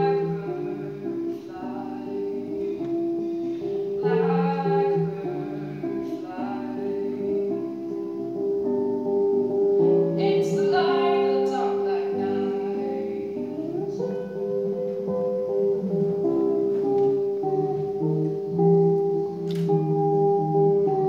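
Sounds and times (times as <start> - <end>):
woman singing: 0.0 - 3.0, 3.9 - 8.4, 10.2 - 14.7.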